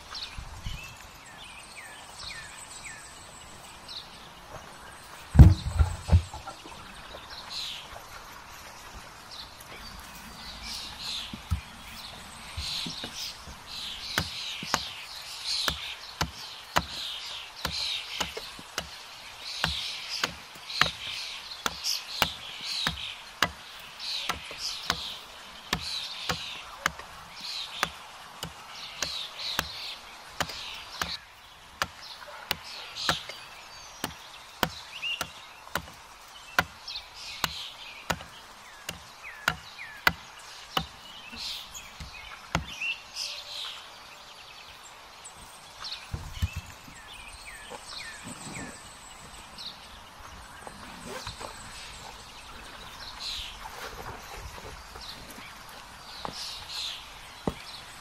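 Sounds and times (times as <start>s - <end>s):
hatchet chopping wood: 5.3s - 6.4s, 12.6s - 42.9s.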